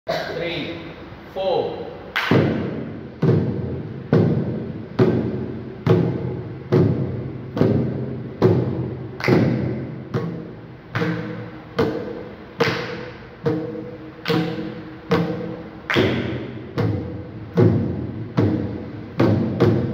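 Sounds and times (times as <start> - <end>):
drum strokes ringing: 2.3 - 19.9.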